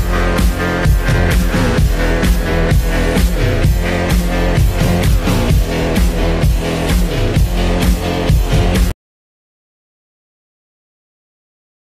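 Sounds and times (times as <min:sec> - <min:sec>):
background music with steady beat: 0:00.0 - 0:09.0.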